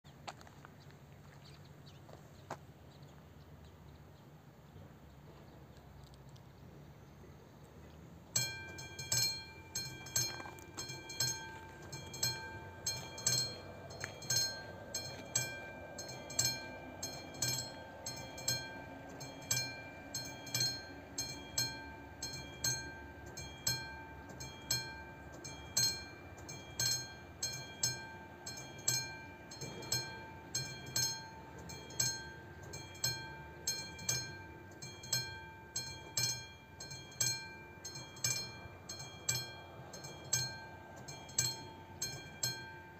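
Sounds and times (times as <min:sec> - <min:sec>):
level crossing bell ringing: 0:08.4 - 0:42.9.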